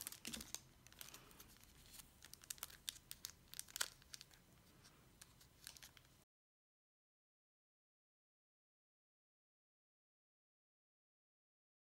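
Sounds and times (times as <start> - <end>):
plastic wrapper crinkling: 0.0 - 6.2.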